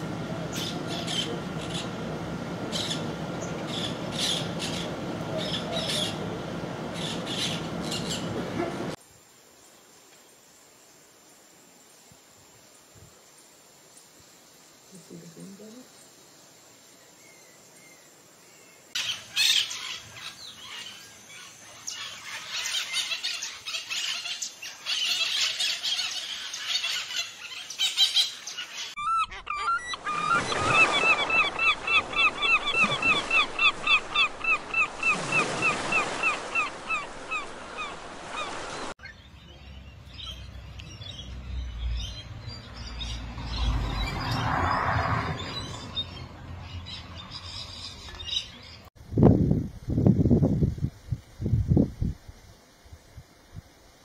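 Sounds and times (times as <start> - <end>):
birds chirping and twittering: 0.0 - 9.0, 14.9 - 48.9
gulls honking: 0.0 - 9.0, 28.7 - 38.9.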